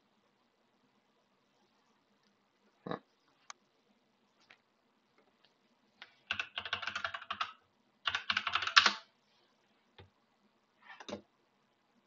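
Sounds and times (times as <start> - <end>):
computer keyboard typing: 6.3 - 9.1.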